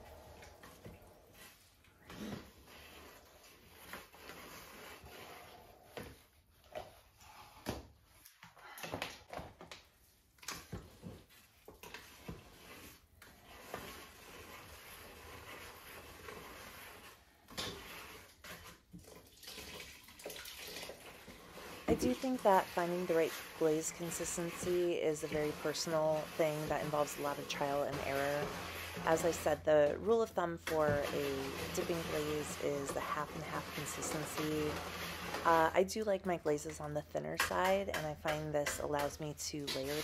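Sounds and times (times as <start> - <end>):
slurry sloshing in bucket: 10.4 - 36.8.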